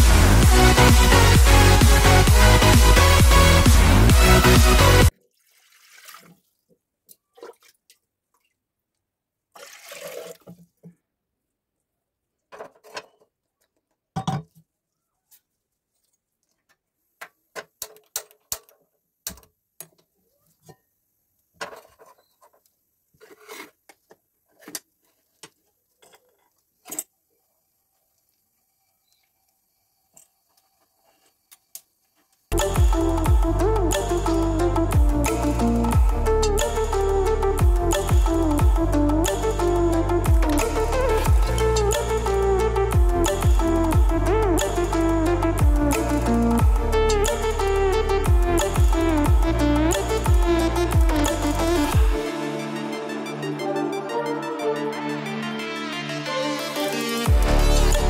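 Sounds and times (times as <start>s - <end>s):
water pouring into a pot: 5.1s - 6.6s, 9.5s - 10.6s.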